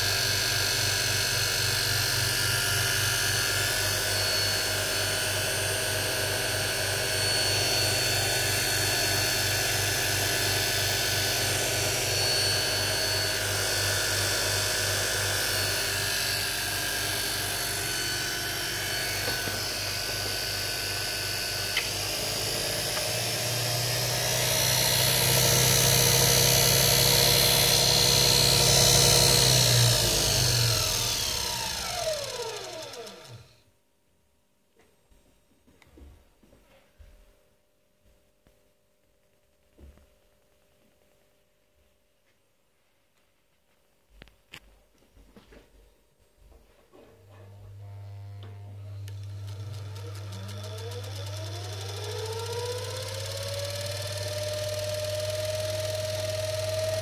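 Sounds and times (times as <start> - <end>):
electric motor humming and whining: 0.0 - 33.6, 47.6 - 57.0.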